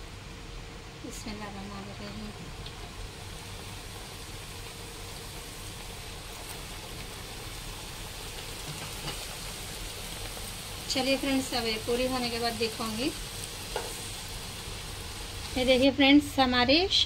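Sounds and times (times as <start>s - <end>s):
deep-frying sizzle in hot oil: 1.0s - 17.0s.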